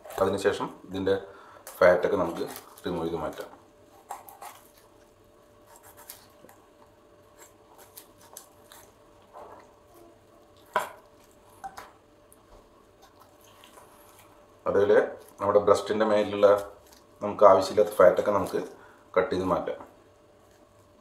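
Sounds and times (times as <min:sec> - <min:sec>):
knife scraping through meat: 0:04.0 - 0:04.9, 0:05.6 - 0:06.5, 0:07.3 - 0:09.6.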